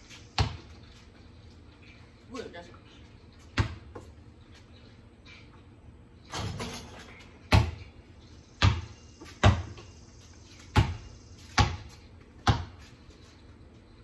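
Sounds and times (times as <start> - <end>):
basketball bouncing on concrete: 0.0 - 1.1, 3.4 - 4.2, 6.5 - 13.0.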